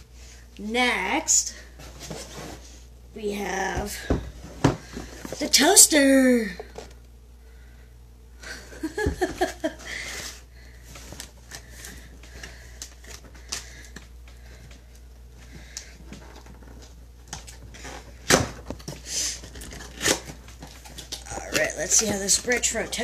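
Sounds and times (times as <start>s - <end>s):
cardboard packaging rustling: 8.9s - 23.0s.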